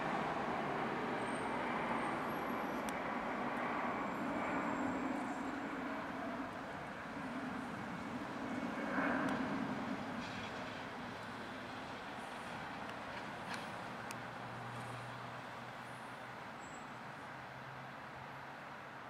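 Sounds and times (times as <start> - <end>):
jet engines at takeoff thrust: 0.0 - 17.4.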